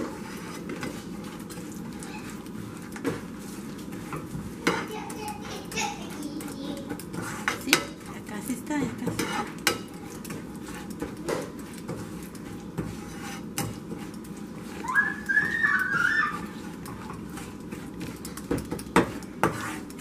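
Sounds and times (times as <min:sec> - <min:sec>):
spoon scraping frying pan: 0:00.0 - 0:20.0
high whistle-like sound: 0:14.9 - 0:16.4.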